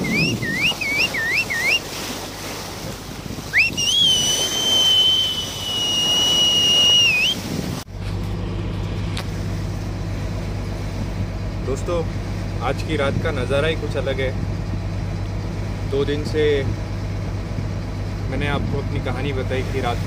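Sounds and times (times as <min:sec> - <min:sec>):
high whistling: 0:00.0 - 0:01.9, 0:03.5 - 0:07.4
low engine hum: 0:00.0 - 0:20.0
running boat: 0:00.0 - 0:20.0
water: 0:00.0 - 0:20.0.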